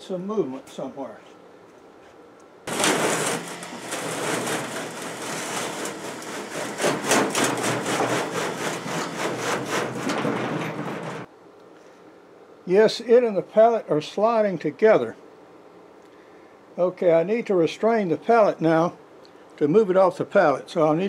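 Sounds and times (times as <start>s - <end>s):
steel pallet scraping on metal deck: 2.7s - 11.3s.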